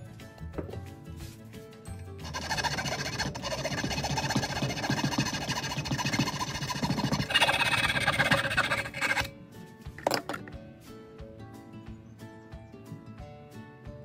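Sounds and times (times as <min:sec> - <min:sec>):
rotary tool grinding metal: 0:02.2 - 0:09.3.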